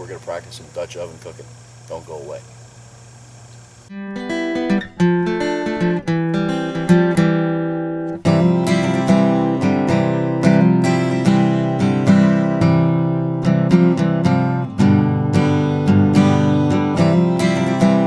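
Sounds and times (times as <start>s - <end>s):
acoustic guitar strumming: 3.9s - 18.0s.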